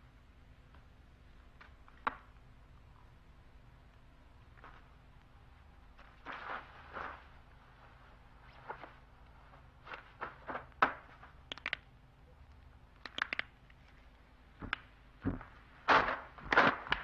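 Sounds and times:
faint low soundtrack hum: 0:00.0 - 0:17.0
rustles of movement: 0:04.2 - 0:11.6, 0:13.7 - 0:17.0
knuckles cracking: 0:09.9 - 0:17.0.

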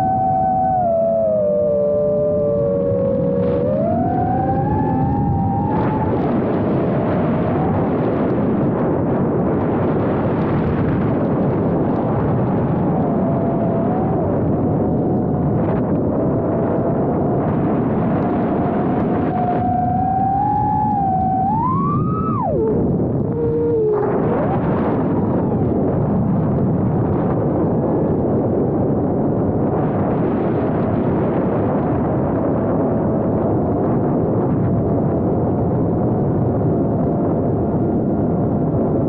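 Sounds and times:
drone motors whining: 0:00.0 - 0:08.4, 0:12.2 - 0:26.2
rushing wind: 0:00.0 - 0:39.0.

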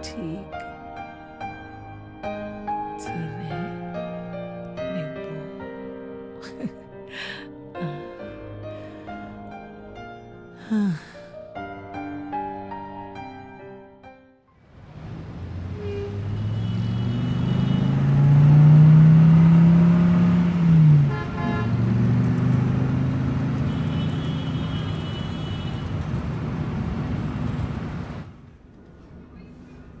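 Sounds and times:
city street traffic: 0:14.6 - 0:30.0
heavy vehicle engine revving: 0:14.9 - 0:24.4
brief horn toot: 0:15.8 - 0:18.1.

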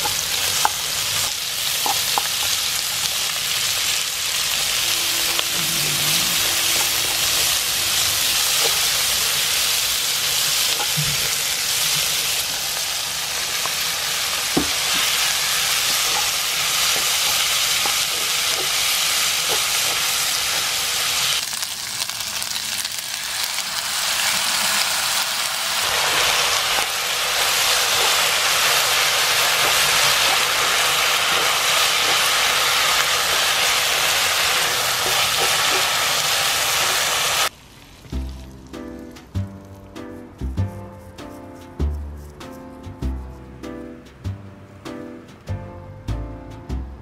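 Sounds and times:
food sizzling in a hot pan: 0:00.0 - 0:38.7
background music: 0:04.6 - 0:10.8, 0:38.1 - 0:47.0.

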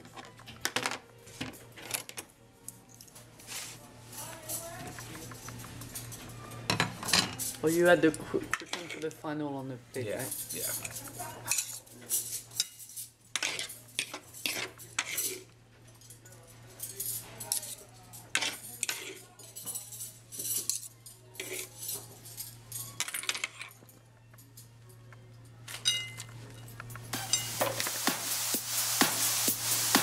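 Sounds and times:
metal utensils clinking in bowl: 0:04.2 - 0:09.3, 0:10.0 - 0:27.9.

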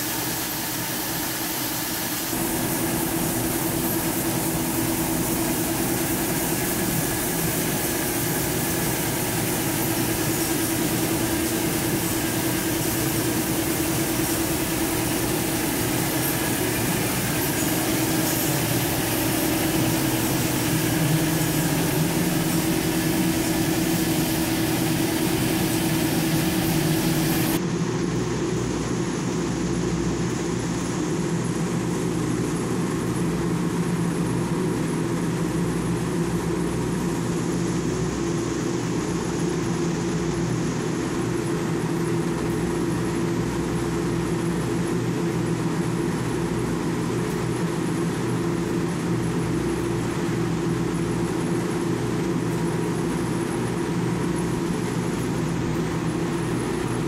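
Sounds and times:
extruder line low hum: 0:00.0 - 0:34.0
motors and blowers humming: 0:00.0 - 0:57.0.

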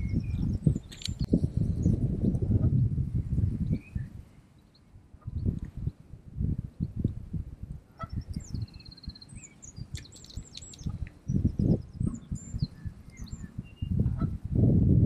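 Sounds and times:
songbirds chirping: 0:00.0 - 0:14.5
bird trill: 0:08.0 - 0:14.0.

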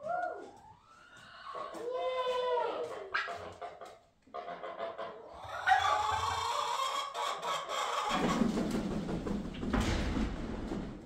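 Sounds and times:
bird wings flapping: 0:08.1 - 0:11.0.

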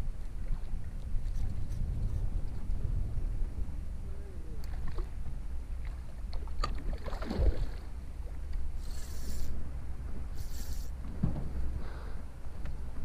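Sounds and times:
wind rumbling on microphone: 0:00.0 - 0:13.0
high hissing rasps: 0:08.8 - 0:09.6, 0:10.3 - 0:11.0.

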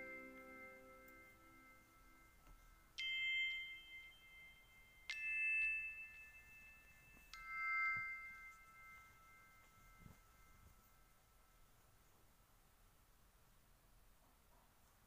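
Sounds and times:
bell-like chime notes: 0:00.0 - 0:11.5.

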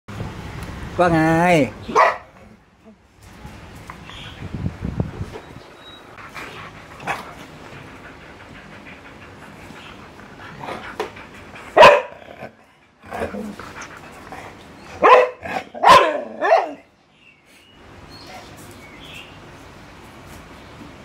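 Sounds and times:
dog barking: 0:01.9 - 0:02.4, 0:11.8 - 0:12.2, 0:15.0 - 0:16.9.

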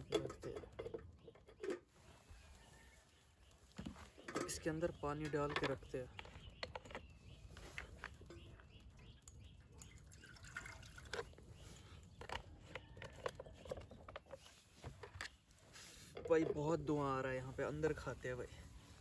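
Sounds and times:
small clicks and knocks: 0:03.8 - 0:10.0, 0:11.0 - 0:15.4
water dripping and pouring: 0:09.3 - 0:11.4.

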